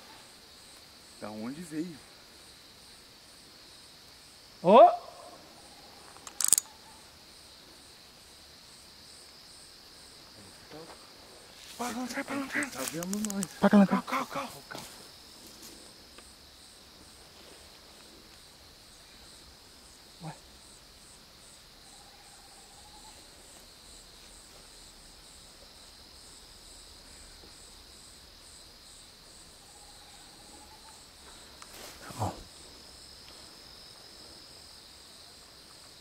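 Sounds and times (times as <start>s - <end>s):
insects trilling: 0.0s - 36.0s
pulsing insect call: 0.0s - 36.0s.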